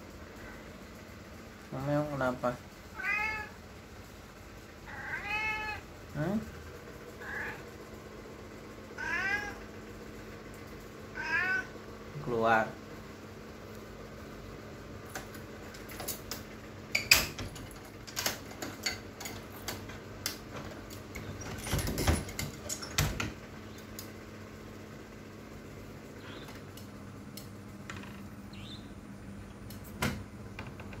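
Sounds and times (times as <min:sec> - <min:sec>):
wooden door unlatching and opening: 0:15.1 - 0:23.4, 0:27.8 - 0:28.4, 0:29.9 - 0:31.0.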